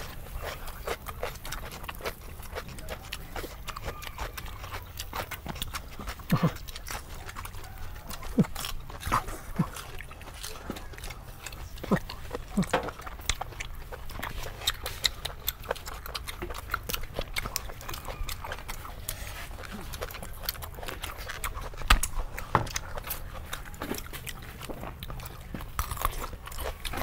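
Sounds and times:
people chewing and crunching food: 0:00.0 - 0:27.0
mouth clicks: 0:00.4 - 0:24.1.

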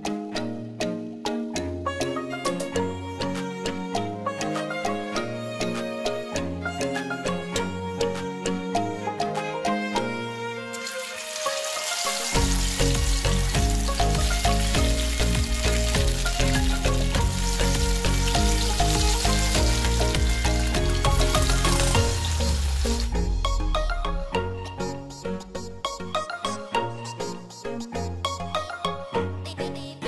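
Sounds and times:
oil sizzling while deep-frying: 0:10.7 - 0:23.3.

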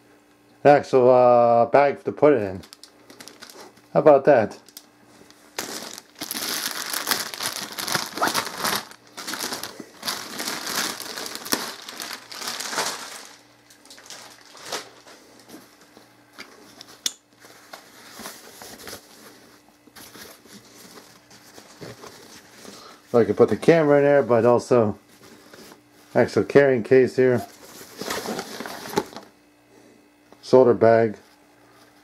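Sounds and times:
plastic bag crinkling: 0:02.6 - 0:03.8, 0:04.6 - 0:15.6
fabric bag rustling: 0:05.5 - 0:15.1.

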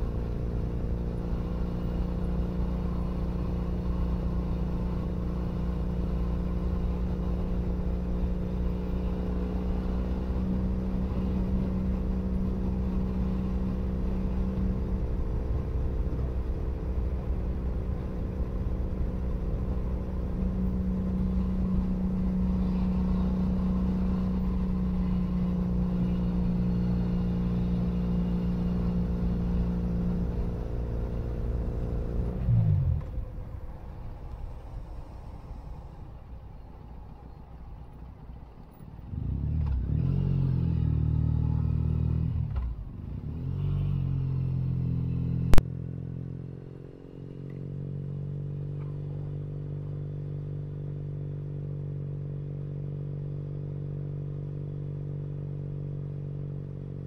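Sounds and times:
motorcycle engine rumbling: 0:06.6 - 0:50.8.

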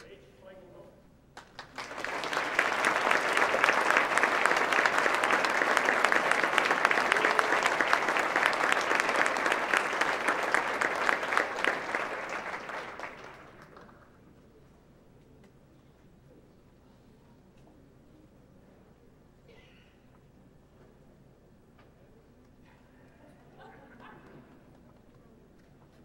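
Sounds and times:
audience applauding: 0:01.4 - 0:14.2.

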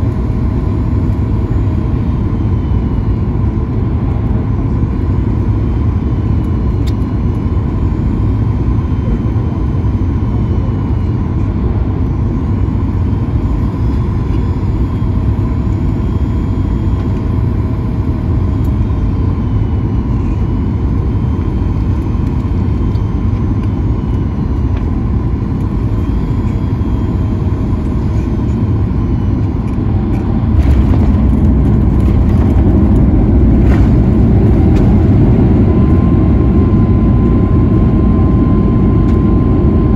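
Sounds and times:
airflow and jet engines rushing: 0:00.0 - 0:39.9
faint whining tones: 0:00.0 - 0:39.9
wheels rumbling on runway: 0:21.2 - 0:39.9.

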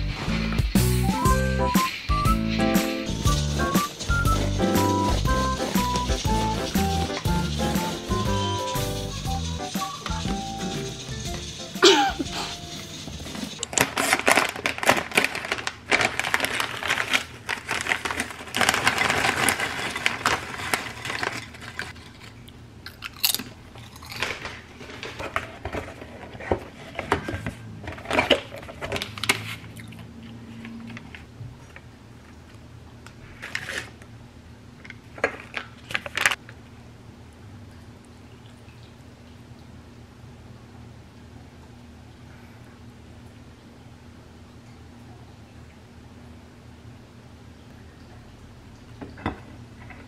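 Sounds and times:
lint roller crackling over fabric: 0:03.1 - 0:22.0
tea sachet crinkling: 0:11.2 - 0:25.3, 0:35.2 - 0:36.4.

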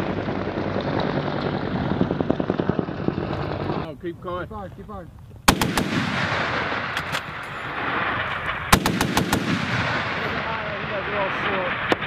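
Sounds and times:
rapid automatic cannon fire: 0:05.5 - 0:12.0.

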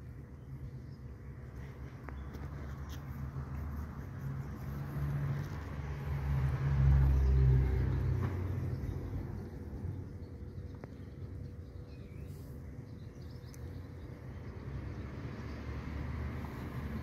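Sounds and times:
motor vehicle passing by: 0:01.6 - 0:10.2, 0:14.2 - 0:17.0.

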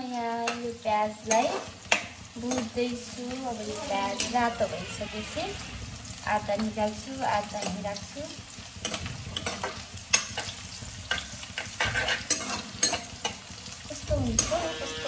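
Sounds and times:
food sizzling in a pan: 0:00.0 - 0:15.0
spoon scraping and clinking pan: 0:08.8 - 0:13.5, 0:14.3 - 0:15.0.

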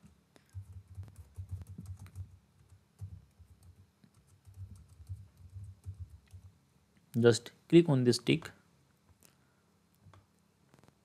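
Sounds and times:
typing on computer keyboard: 0:00.4 - 0:06.5.

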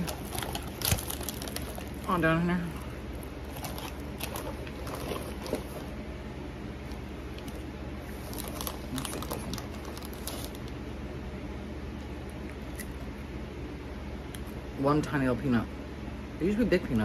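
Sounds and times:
foil bag crinkling: 0:00.0 - 0:06.0, 0:06.8 - 0:10.8
popcorn rustling: 0:00.0 - 0:06.2, 0:06.8 - 0:10.8
steady low hum: 0:00.0 - 0:17.0.

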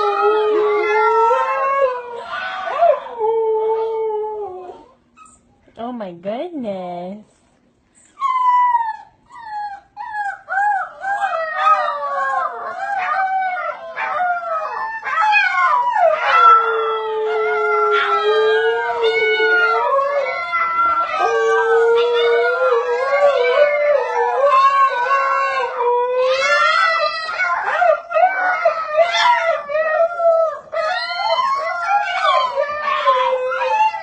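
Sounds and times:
dog long low howl: 0:00.0 - 0:05.0, 0:08.4 - 0:34.0
puppies howling: 0:00.0 - 0:05.4, 0:08.2 - 0:34.0.

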